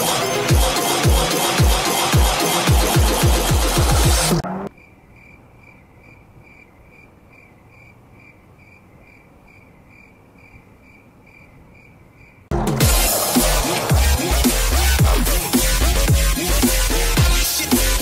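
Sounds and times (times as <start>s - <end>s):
cricket chirping: 4.7s - 12.5s.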